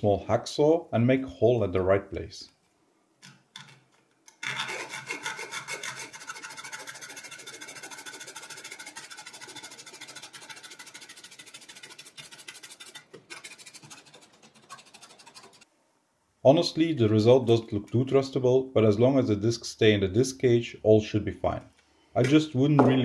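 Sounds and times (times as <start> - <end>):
hacksaw rasping through plastic: 3.2 - 11.0.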